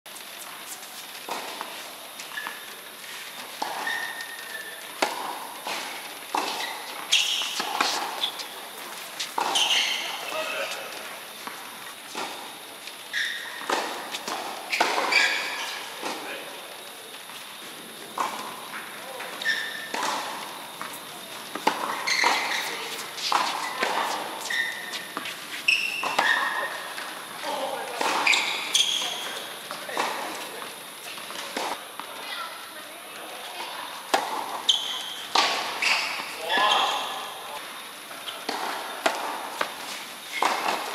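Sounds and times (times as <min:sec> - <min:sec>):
shoe squeaks on court: 0:00.3 - 0:11.1, 0:11.9 - 0:16.4, 0:18.2 - 0:31.8, 0:34.2 - 0:37.6, 0:39.6 - 0:40.8
tennis ball bouncing: 0:03.5 - 0:12.7, 0:13.3 - 0:15.4, 0:18.0 - 0:25.4, 0:26.0 - 0:31.8, 0:34.0 - 0:36.8, 0:38.4 - 0:39.8, 0:40.4 - 0:40.9
tennis racket striking ball: 0:05.0 - 0:10.3, 0:19.7 - 0:25.4.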